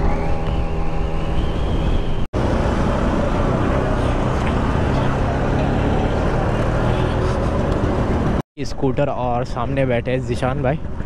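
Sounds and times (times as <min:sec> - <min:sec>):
scooter and motorbike engines: 0:00.0 - 0:08.4.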